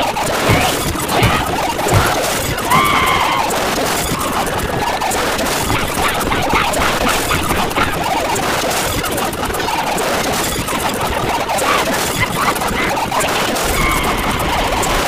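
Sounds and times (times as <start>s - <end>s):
chaotic din of overlapping clips: 0.0s - 3.6s.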